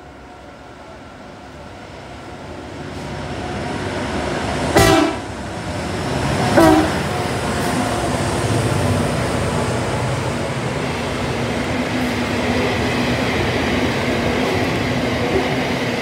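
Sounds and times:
diesel locomotive engine rumble: 0.0s - 16.0s
train horn blasts: 4.7s - 5.4s, 6.5s - 7.1s.

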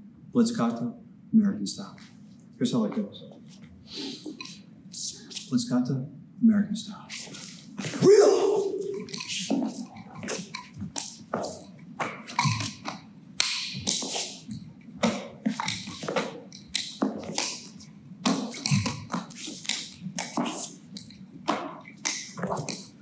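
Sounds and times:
nunchaku swishing through air: 7.1s - 23.0s
nunchaku taps and slaps: 7.8s - 23.0s.

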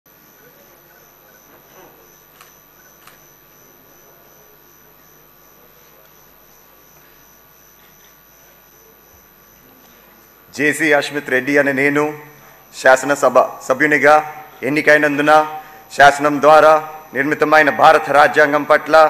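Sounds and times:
electrical hum: 0.1s - 19.0s
faint voice murmur: 0.4s - 3.1s.

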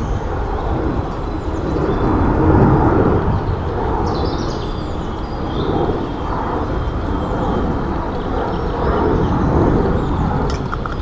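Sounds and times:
birds chirping: 0.0s - 11.0s
low outdoor rumble: 0.0s - 11.0s.

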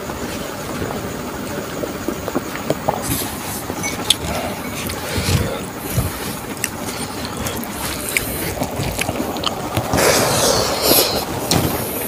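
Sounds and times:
mouth chewing with wet smacks: 2.9s - 10.0s
hand rustling food on leaves: 2.9s - 11.4s.

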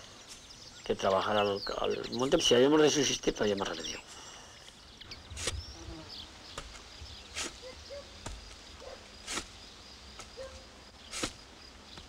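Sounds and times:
high insect whine: 4.5s - 12.0s
shovel scraping soil: 5.3s - 5.8s, 6.6s - 12.0s
short bird calls: 7.3s - 8.2s.

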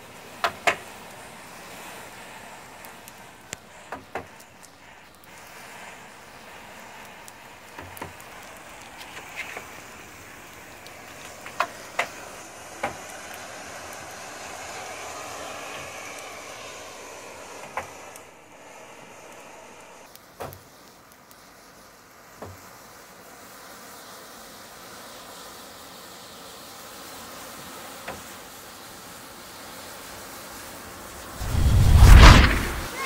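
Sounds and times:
matchsticks burning: 0.0s - 27.2s, 31.2s - 33.0s
sharp pops: 31.4s - 33.0s.

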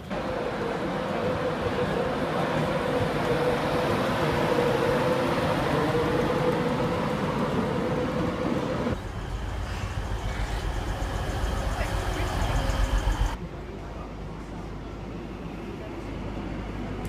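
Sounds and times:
electric train passing: 0.0s - 13.4s.

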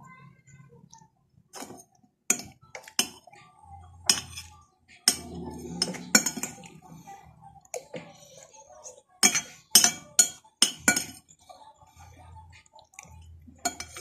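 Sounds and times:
metal spoon clinking on bowl: 4.1s - 6.7s, 9.2s - 11.2s, 13.6s - 14.0s.

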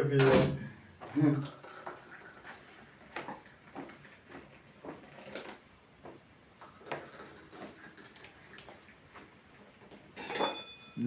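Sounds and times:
tea pouring into glasses: 1.0s - 5.6s, 6.6s - 9.3s
glasses clinking: 10.1s - 11.0s.

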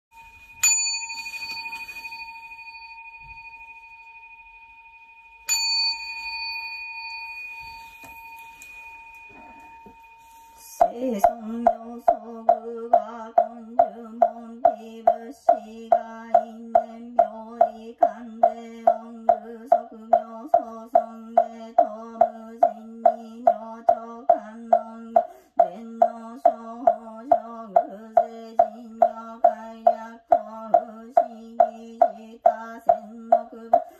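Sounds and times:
altar bell ringing: 0.1s - 31.8s
monotone chant: 10.5s - 33.9s
wooden knocker beat: 10.7s - 33.9s.

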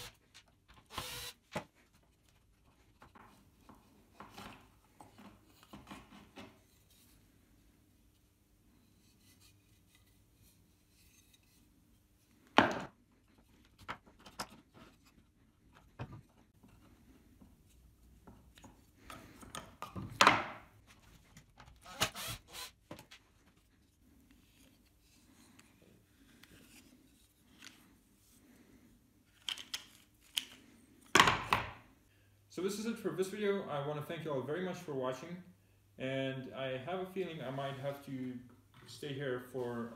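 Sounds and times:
wooden parts knocking and clattering: 18.2s - 20.6s.

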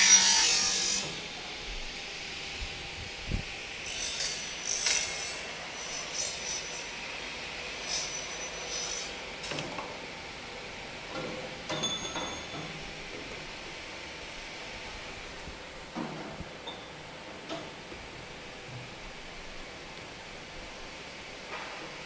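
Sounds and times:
saw cutting plastic with whine: 0.0s - 2.5s, 3.3s - 7.1s, 7.7s - 9.5s.

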